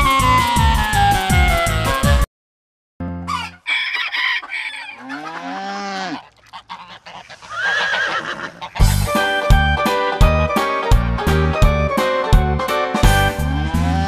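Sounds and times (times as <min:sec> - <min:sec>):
cow mooing: 0:04.7 - 0:06.4, 0:13.4 - 0:14.0
horse whinnying: 0:07.2 - 0:08.8.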